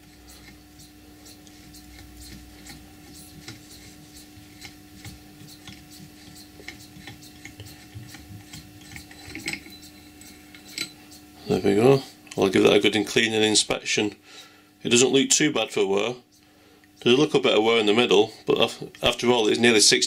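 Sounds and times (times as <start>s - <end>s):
metallic rubbing with light ticks: 0.0s - 13.3s, 15.7s - 19.8s.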